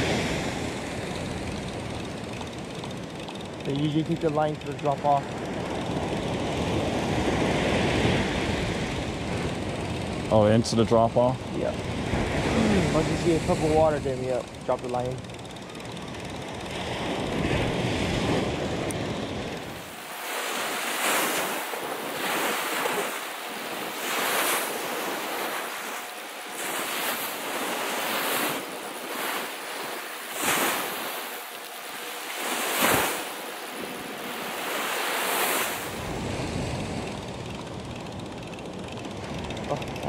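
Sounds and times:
surf breaking on beach: 0:00.0 - 0:01.5, 0:03.6 - 0:15.0, 0:16.5 - 0:37.5
wind rumble on microphone: 0:35.8 - 0:38.4.

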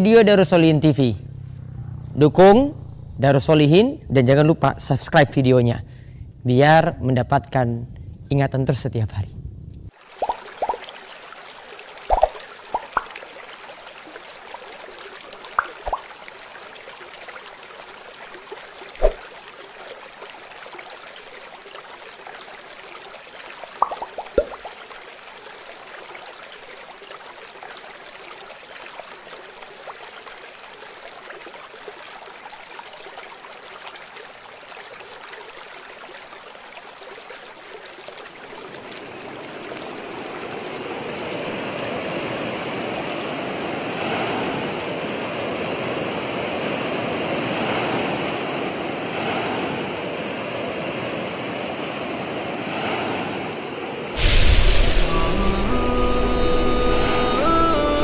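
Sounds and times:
water drips: 0:09.8 - 0:40.7
trickling running water: 0:09.9 - 0:41.6.

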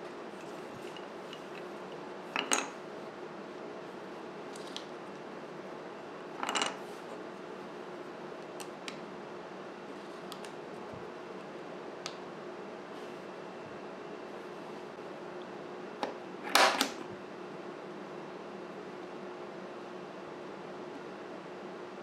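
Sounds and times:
steady low hum: 0:00.0 - 0:16.4
knife parts clattering on wood: 0:02.4 - 0:02.7.

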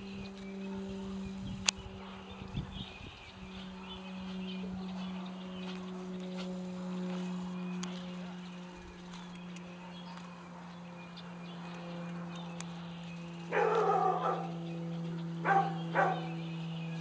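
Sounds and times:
steady low hum: 0:00.0 - 0:17.0
dog barking: 0:13.5 - 0:14.5, 0:15.4 - 0:16.3.

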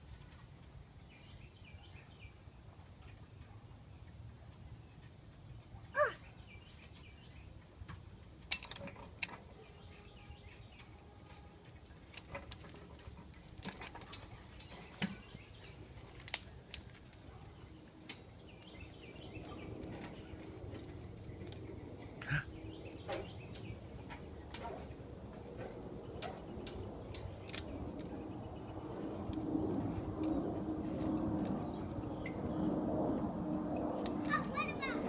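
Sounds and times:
metal play set clicks and knocks: 0:07.9 - 0:09.6.

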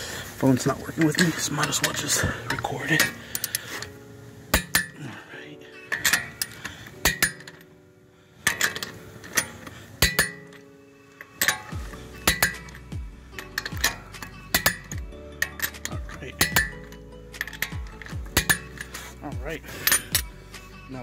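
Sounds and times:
torque wrench clicking: 0:11.3 - 0:19.0.

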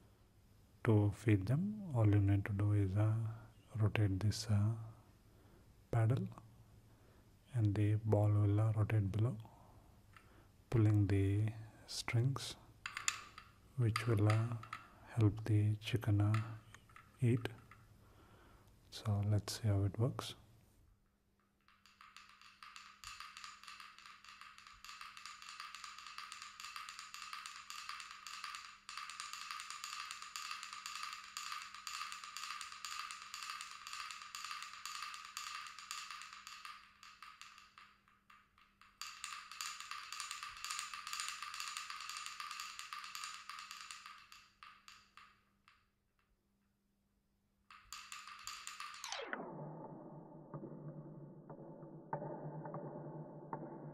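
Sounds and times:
wooden toy chickens tapping: 0:12.8 - 0:15.4, 0:16.0 - 0:17.9, 0:21.4 - 0:46.4, 0:47.6 - 0:49.2, 0:50.4 - 0:53.9.

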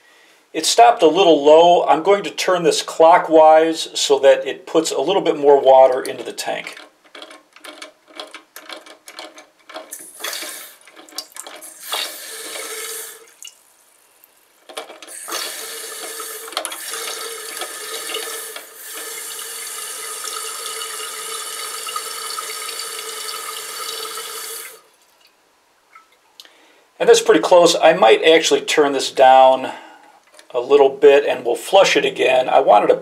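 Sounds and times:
toilet tank refilling with water: 0:07.2 - 0:26.2.

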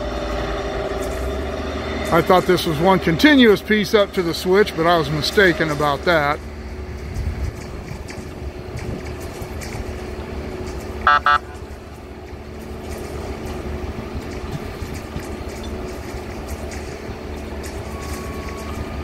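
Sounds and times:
diesel engines running: 0:00.0 - 0:19.0
horn toots: 0:11.0 - 0:11.8.

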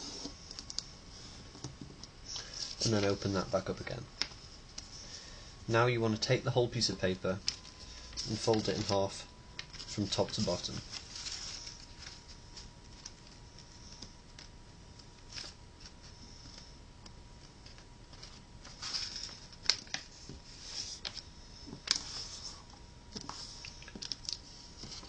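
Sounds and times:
paper rustling and crinkling: 0:07.3 - 0:14.5, 0:15.2 - 0:16.7, 0:17.5 - 0:25.0.

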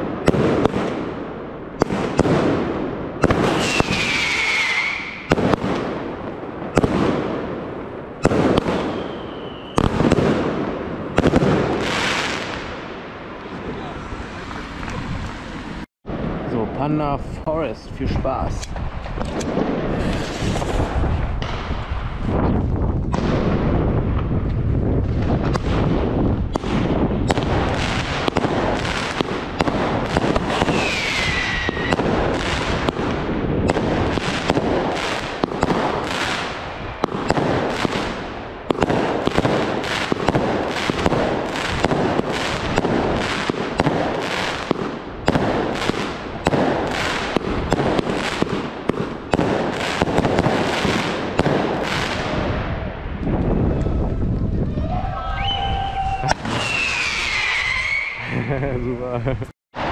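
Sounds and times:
firework bangs and crackling bursts: 0:00.0 - 0:54.9, 0:55.6 - 0:58.7
falling firework whistle: 0:03.4 - 0:05.4, 0:08.7 - 0:09.9, 0:30.4 - 0:32.1, 0:54.8 - 0:58.5.

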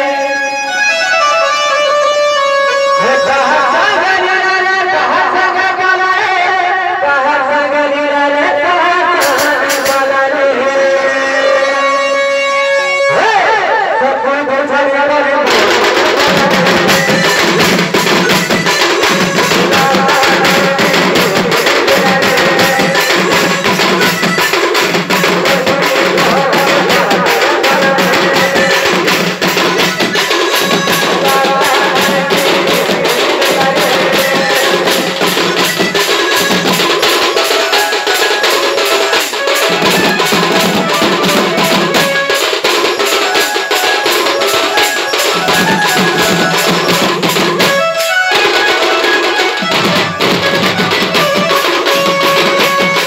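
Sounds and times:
band music with barrel drums: 0:00.0 - 0:06.4, 0:08.7 - 0:13.7, 0:15.4 - 0:53.0.

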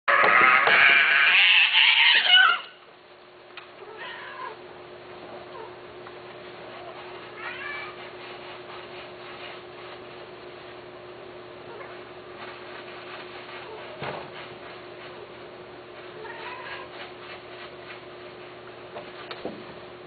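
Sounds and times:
cat yowling and meowing: 0:00.1 - 0:02.8, 0:03.8 - 0:04.6, 0:06.8 - 0:08.1, 0:16.1 - 0:16.9
faint hum: 0:01.2 - 0:20.0.

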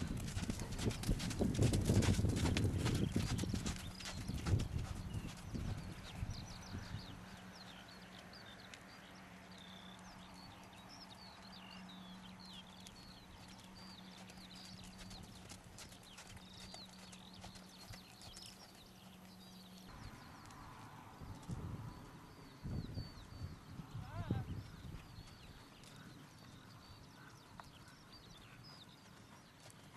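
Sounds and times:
horse hoofbeats on sand: 0:00.0 - 0:07.0, 0:12.4 - 0:21.7, 0:23.8 - 0:29.9
small birds chirping: 0:00.0 - 0:29.9.

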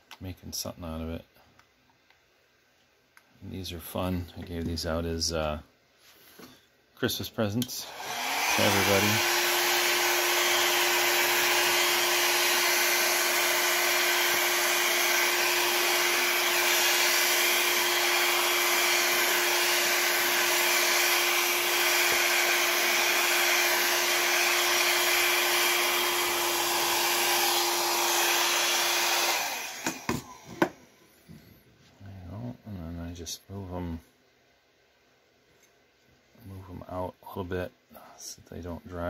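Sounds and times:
hair dryer blowing: 0:07.6 - 0:31.0.

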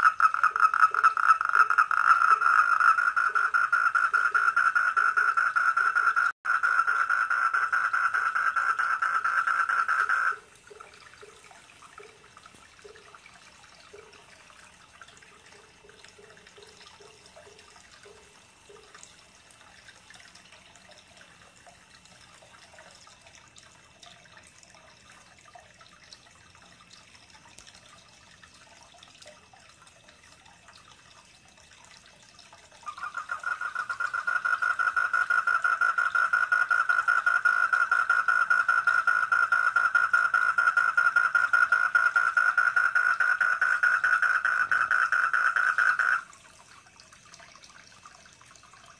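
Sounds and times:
tree frogs trilling: 0:00.0 - 0:11.4, 0:32.8 - 0:46.3
trickling water: 0:00.0 - 0:48.9
faint low croaks: 0:32.8 - 0:46.3.

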